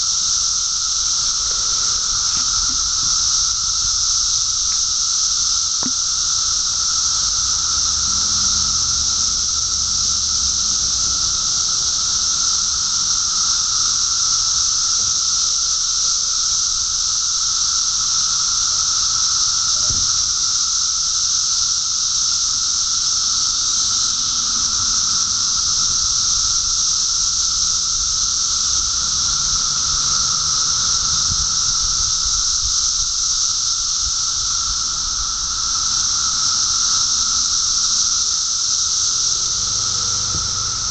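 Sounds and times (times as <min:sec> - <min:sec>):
cicadas chorus hissing: 0:00.0 - 0:40.9.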